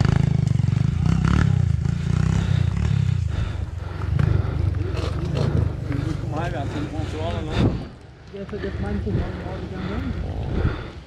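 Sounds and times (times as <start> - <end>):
motorcycle engine revving: 0.0 - 7.9.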